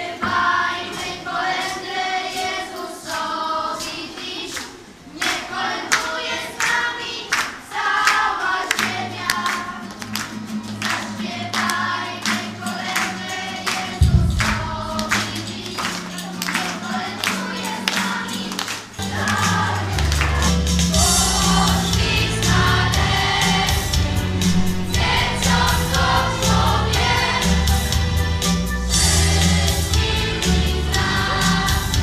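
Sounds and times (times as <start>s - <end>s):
children singing a carol: 0.0s - 10.0s, 10.8s - 32.0s
low thump: 14.0s - 15.3s, 24.5s - 26.3s
steady low accompaniment: 14.0s - 16.0s, 21.8s - 28.6s.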